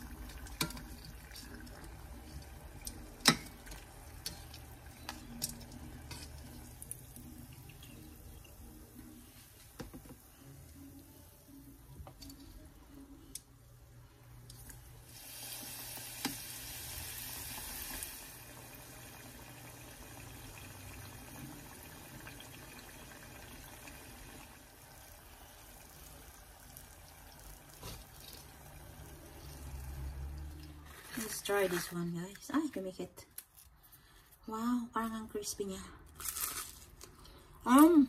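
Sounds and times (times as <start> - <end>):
metal tongs clicking on pot: 2.3 - 6.6
food sizzling in hot oil: 15.0 - 31.7.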